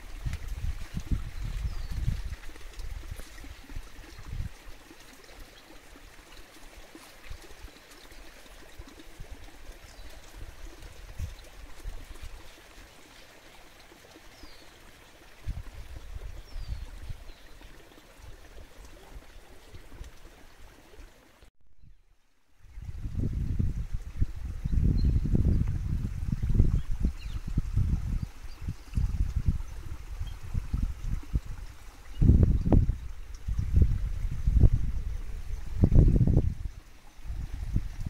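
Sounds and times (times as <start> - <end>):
wind rushing in gusts: 22.7 - 38.0.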